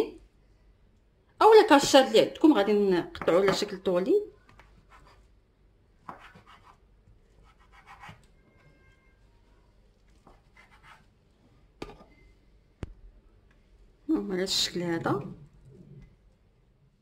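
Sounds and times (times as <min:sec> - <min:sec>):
knife scraping on cutting board: 0:07.4 - 0:08.2, 0:10.2 - 0:11.1.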